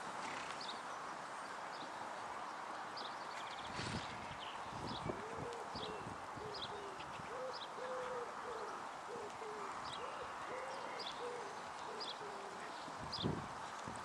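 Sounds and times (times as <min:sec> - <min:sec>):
small birds chirping: 0:00.2 - 0:13.8
pigeon cooing: 0:05.1 - 0:12.7.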